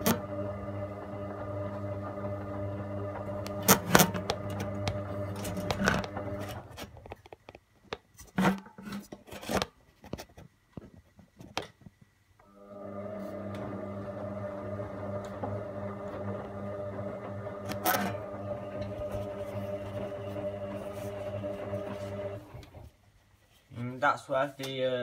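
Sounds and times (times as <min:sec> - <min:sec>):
washing machine motor humming: 0:00.0 - 0:06.7, 0:12.4 - 0:22.8.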